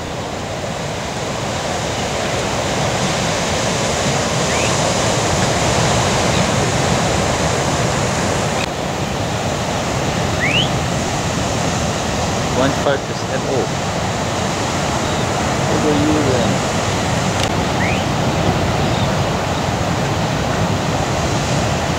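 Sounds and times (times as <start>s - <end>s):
ocean waves breaking: 0.0s - 21.9s
short rising chirp: 10.4s - 10.8s, 17.8s - 18.1s.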